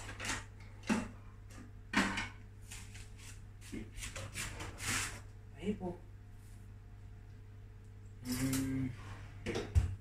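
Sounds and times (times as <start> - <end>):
low electrical hum: 0.0 - 10.0.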